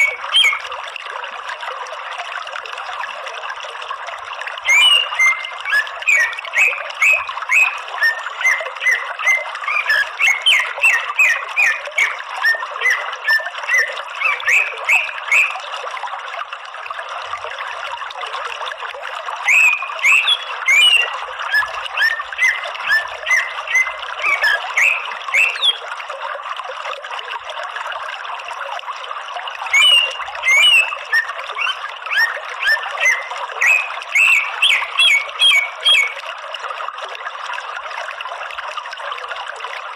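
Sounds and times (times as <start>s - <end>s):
bird chirping song: 0.0s - 0.7s, 4.6s - 15.6s, 19.4s - 25.8s, 29.7s - 36.2s.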